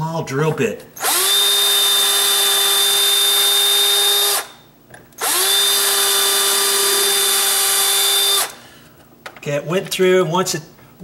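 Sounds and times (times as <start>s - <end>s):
power drill whining: 1.0s - 4.6s, 5.2s - 8.6s.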